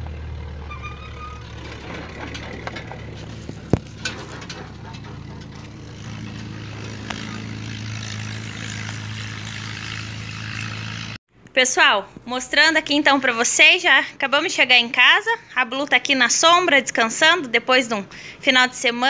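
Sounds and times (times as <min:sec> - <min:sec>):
car engine humming: 0:00.0 - 0:11.2.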